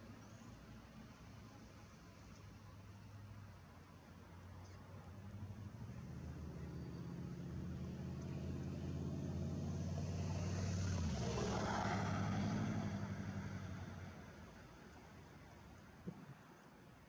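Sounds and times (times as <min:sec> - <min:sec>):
vehicle passing by: 0:05.3 - 0:14.5.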